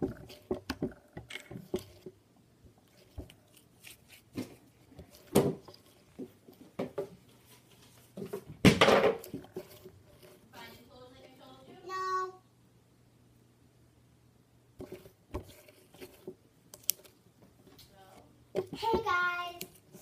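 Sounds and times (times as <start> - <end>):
hands squelching slime: 2.9 - 6.5.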